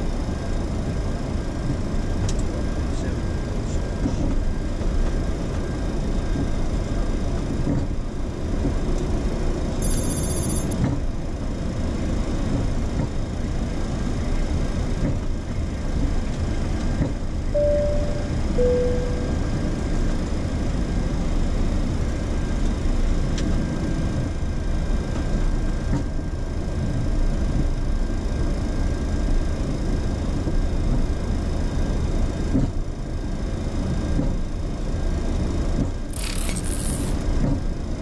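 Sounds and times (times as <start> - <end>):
aircraft engine rumble: 0.0 - 9.8, 10.6 - 25.9
two-note falling chime: 17.6 - 19.6
high-pitched electronic tone: 17.6 - 19.7.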